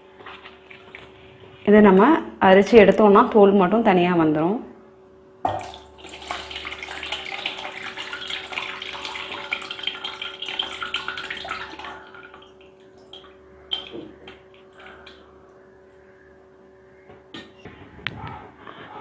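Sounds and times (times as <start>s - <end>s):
water splashing and trickling: 5.5s - 15.2s.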